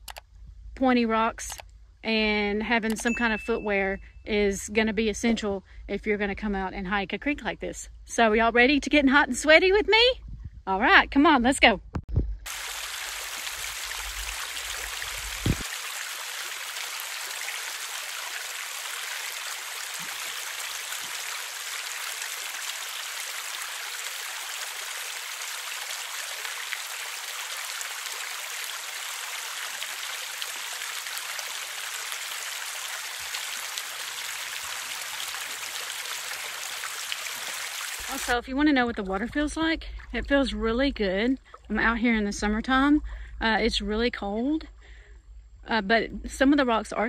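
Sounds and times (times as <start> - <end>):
creek running over rocks: 12.5 - 40.6.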